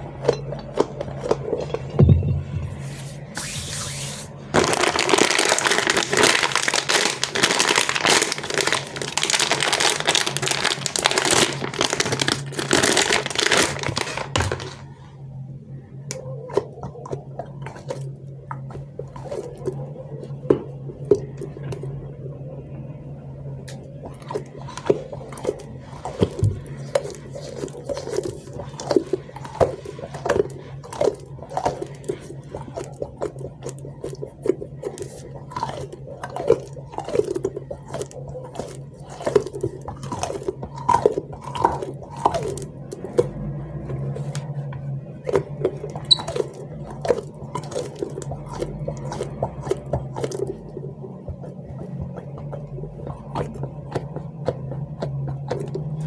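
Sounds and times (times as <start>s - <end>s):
squishy toy squelching: 2.8s - 15.0s, 23.7s - 56.0s
plastic wrapper crinkling and tearing: 4.5s - 14.9s.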